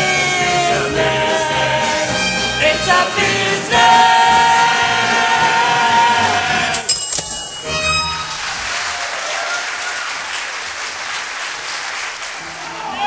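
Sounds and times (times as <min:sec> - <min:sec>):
singers and orchestra holding chord: 0:00.0 - 0:06.8
audience applause: 0:08.2 - 0:13.0.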